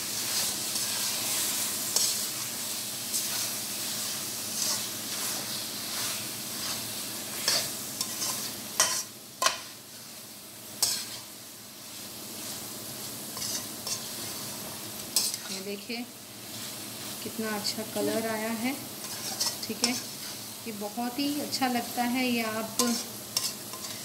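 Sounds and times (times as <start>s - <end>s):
food sizzling in a metal pan: 0.0s - 24.0s
metal spatula scraping pan: 4.6s - 6.8s, 7.4s - 9.6s, 10.8s - 11.3s, 13.4s - 14.4s, 19.0s - 20.5s, 22.6s - 24.0s.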